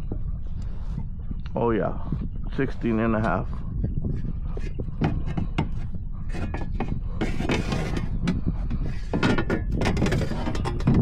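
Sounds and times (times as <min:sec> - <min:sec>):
scraping rustle: 0:02.6 - 0:11.0
fishing gear clicking and knocking: 0:04.6 - 0:11.0.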